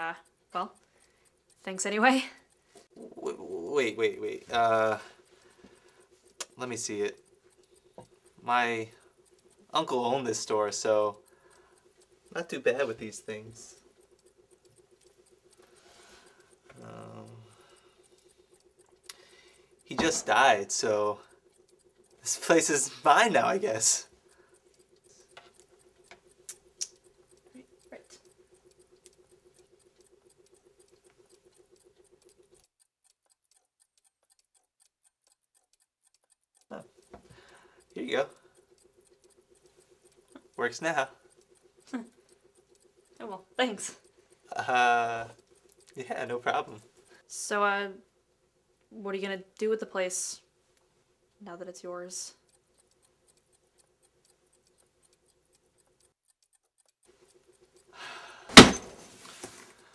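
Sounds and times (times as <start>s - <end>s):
lower pulsing ticking: 0.0s - 58.5s
clock ticking: 0.0s - 59.9s
loud thump: 58.5s - 59.0s.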